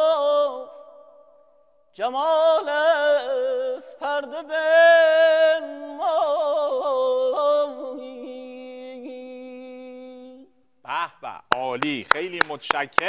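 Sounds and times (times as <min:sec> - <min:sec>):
man singing with trills: 0:01.9 - 0:11.4.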